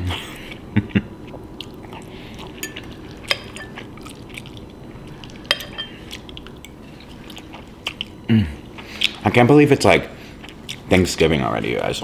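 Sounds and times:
metal utensil stirring in a bowl: 2.6s - 3.8s, 5.5s - 6.0s
sharp clinks against bowl: 2.6s - 3.8s.

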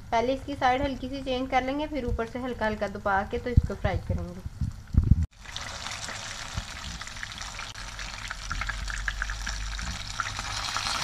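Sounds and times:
fish sizzling in hot oil: 5.3s - 11.0s.

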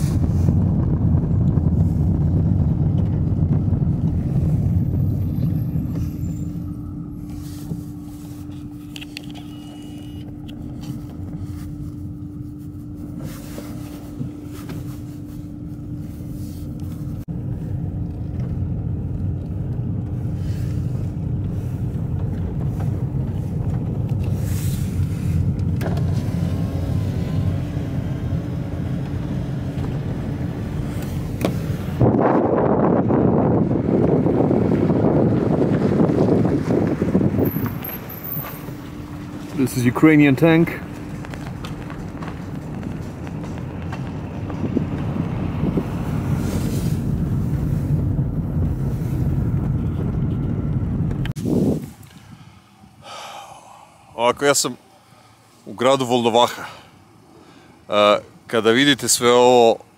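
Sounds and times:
wind noise on microphone: 0.0s - 9.4s, 19.9s - 39.6s, 40.8s - 52.6s
car road and engine rumble: 0.0s - 59.9s.

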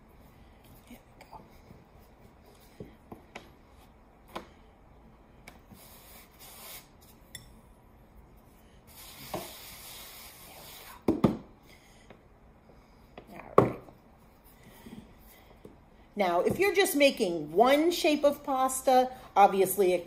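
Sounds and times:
flour rubbing hiss: 5.7s - 7.1s, 8.9s - 11.0s.

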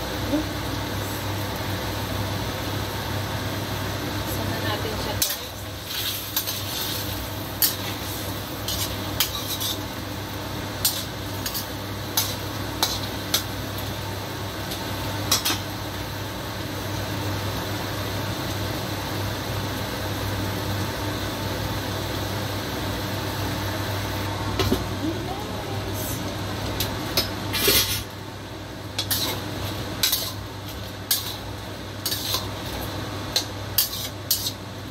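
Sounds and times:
sauce simmering hiss: 0.0s - 24.3s
metal ladle scraping wok: 5.2s - 9.9s, 29.0s - 32.8s, 33.4s - 34.6s.

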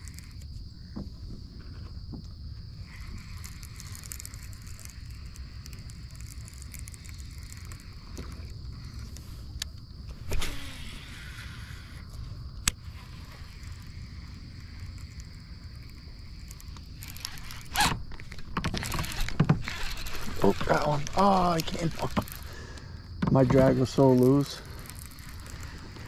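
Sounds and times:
fishing reel click: 0.0s - 0.5s, 2.8s - 22.6s, 23.7s - 26.0s
insect drone: 0.0s - 26.0s
fishing line whirring out: 2.7s - 22.5s, 24.0s - 26.0s.

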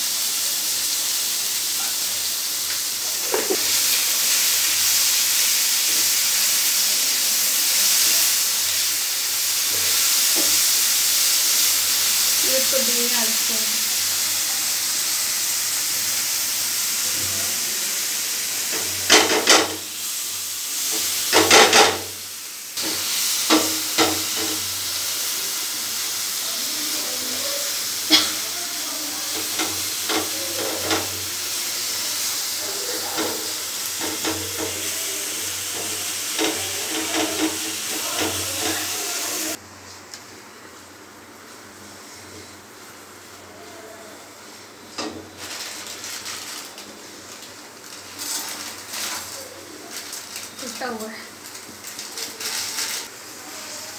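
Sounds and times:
vegetables sizzling in a frying pan: 0.0s - 53.9s
spatula scraping and tapping a pan: 35.8s - 39.1s.

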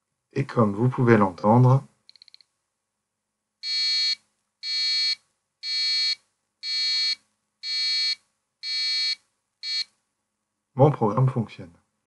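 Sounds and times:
buzzer beeping: 3.6s - 9.9s.

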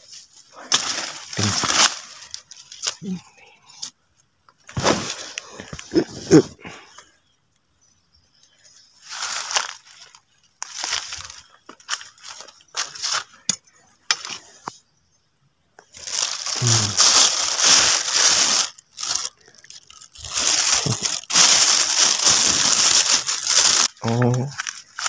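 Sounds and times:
plastic bag crinkling: 0.7s - 3.2s, 9.1s - 13.3s, 15.9s - 25.0s.

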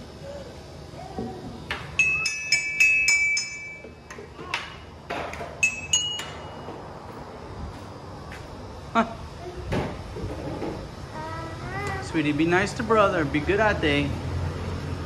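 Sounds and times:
hard objects clinking: 2.0s - 4.7s.

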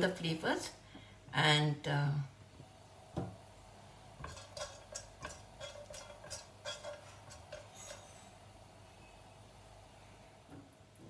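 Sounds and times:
spatula stirring frying spices: 2.7s - 9.2s.

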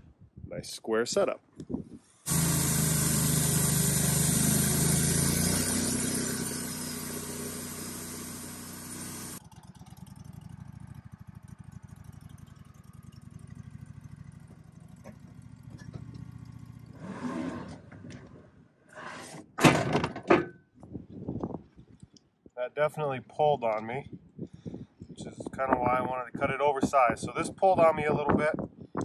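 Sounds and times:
sawmill engine running: 2.2s - 18.1s.

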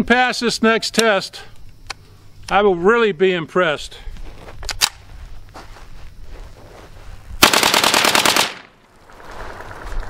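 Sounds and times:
rapid rifle shots: 7.4s - 8.8s.

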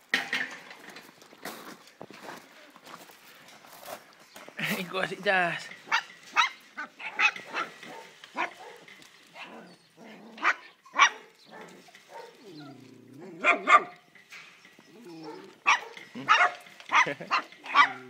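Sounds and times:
puppies yapping: 5.8s - 18.0s.

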